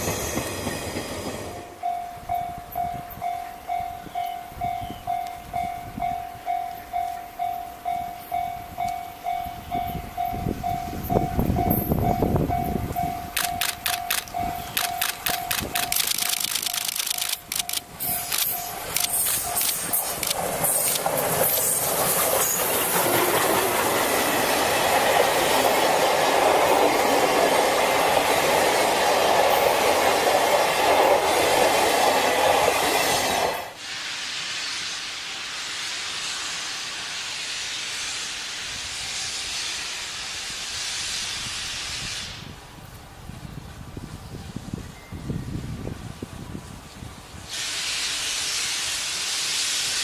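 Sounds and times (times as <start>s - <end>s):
wheels clattering on rail joints: 0.0s - 33.7s
steam locomotive passing: 0.0s - 50.0s
steady hiss: 5.2s - 50.0s.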